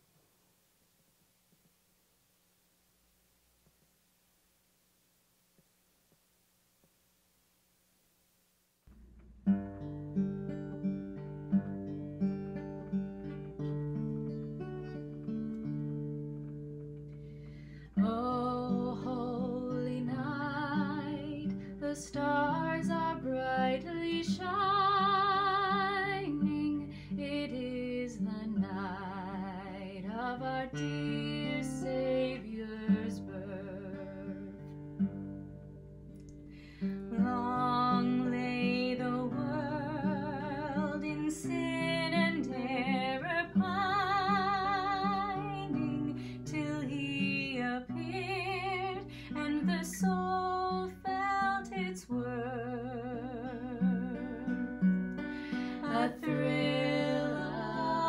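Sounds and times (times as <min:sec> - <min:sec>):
acoustic guitar: 0:08.8 - 0:58.0
woman singing with vibrato: 0:18.0 - 0:34.4, 0:37.1 - 0:54.7, 0:55.5 - 0:58.0.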